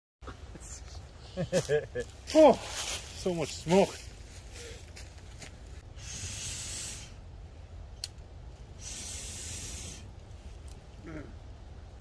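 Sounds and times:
breath blowing on fire: 0:05.9 - 0:07.2, 0:08.8 - 0:10.1.

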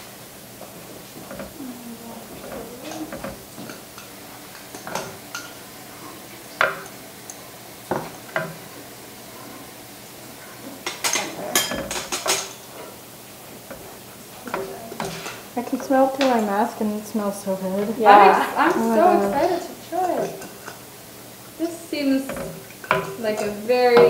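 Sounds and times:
spoon clattering in pot: 0:02.3 - 0:05.6, 0:10.8 - 0:12.7, 0:22.1 - 0:24.0
metal spoons clinking on jars: 0:11.0 - 0:12.6.

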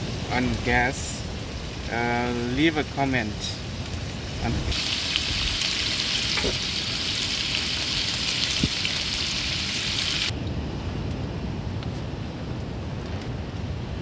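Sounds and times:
low wind rumble: 0:00.0 - 0:14.0
bacon sizzling in frying pan: 0:03.7 - 0:10.3.

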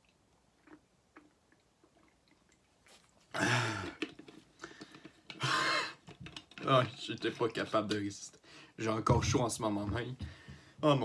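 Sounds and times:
person swallowing: 0:03.3 - 0:04.3
person groaning in pain: 0:03.4 - 0:04.0.

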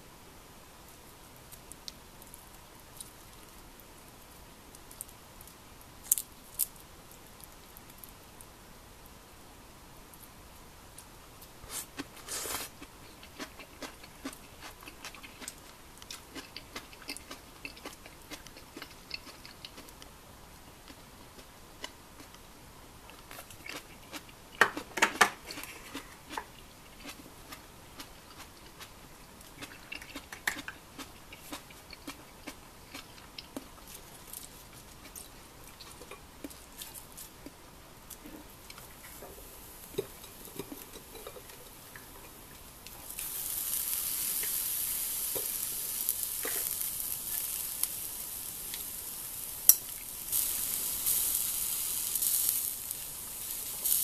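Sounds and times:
chewing: 0:11.7 - 0:20.1, 0:23.1 - 0:39.2.

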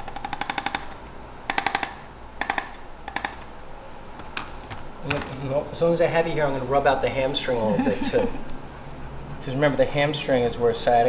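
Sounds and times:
fast clicking bursts: 0:00.0 - 0:03.5.

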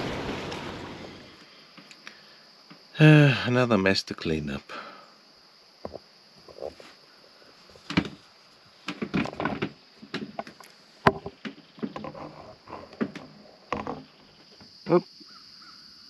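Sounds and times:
crickets trilling: 0:00.0 - 0:16.0
knocks: 0:08.9 - 0:12.2.

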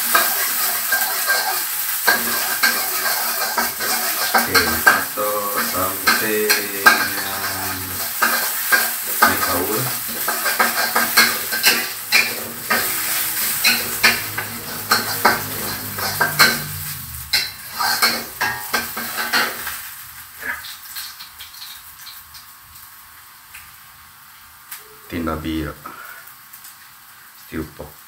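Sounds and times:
spatula scraping and knocking pan: 0:00.0 - 0:19.7
garlic sizzling in hot oil: 0:00.0 - 0:24.8, 0:25.9 - 0:28.0.

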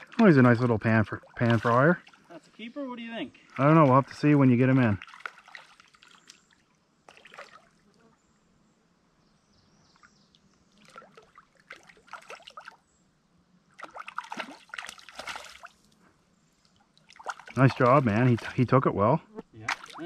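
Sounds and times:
fish splashing at water surface: 0:04.9 - 0:07.8, 0:10.8 - 0:12.8, 0:13.8 - 0:15.8, 0:17.0 - 0:18.5, 0:19.7 - 0:20.0.

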